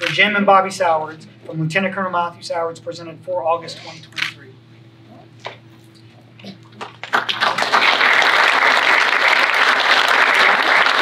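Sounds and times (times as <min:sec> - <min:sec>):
audience applauding: 0:06.8 - 0:11.0.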